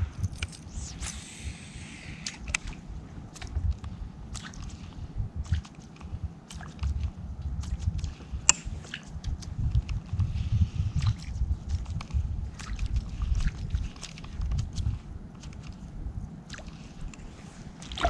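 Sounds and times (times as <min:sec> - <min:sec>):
low rumble: 0:00.0 - 0:15.2
water sloshing and dripping: 0:04.3 - 0:09.4, 0:12.5 - 0:15.5, 0:17.7 - 0:18.0.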